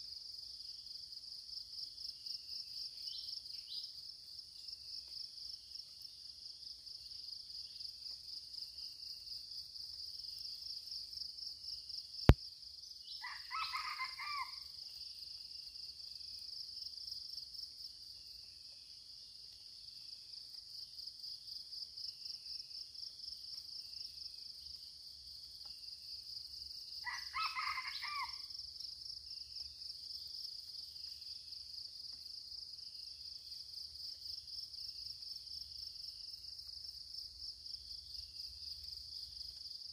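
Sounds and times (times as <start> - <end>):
pulsing insect chorus: 0.0 - 39.9
rooster crowing: 13.2 - 14.6, 27.0 - 28.4.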